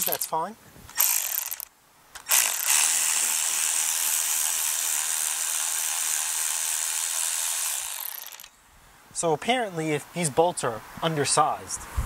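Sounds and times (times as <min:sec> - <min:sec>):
electric ratchet whirring: 0:00.9 - 0:08.6.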